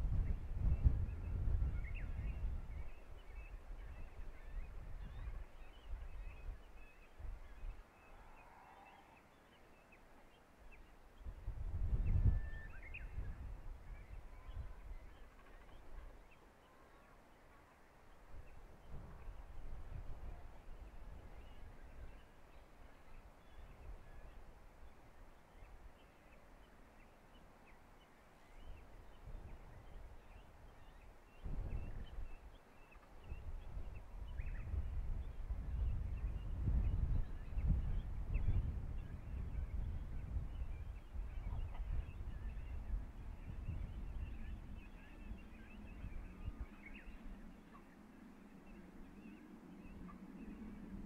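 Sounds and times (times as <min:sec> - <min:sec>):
wind gusting on microphone: 0:00.0 - 0:09.1, 0:11.2 - 0:16.2, 0:18.3 - 0:25.0, 0:28.5 - 0:51.0
faint bird chirps: 0:00.2 - 0:11.3
distant birds chirping: 0:12.5 - 0:51.0.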